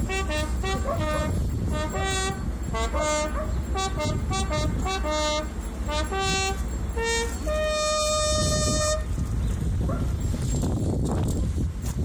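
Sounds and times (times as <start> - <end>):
solo trumpet slow melody: 0.0 - 9.3.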